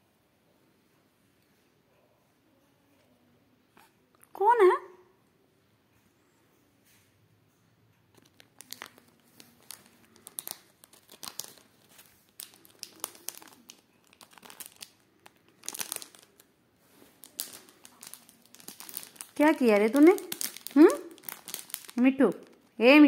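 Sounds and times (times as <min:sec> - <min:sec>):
bird beak crinkling plastic: 0:08.1 - 0:22.8.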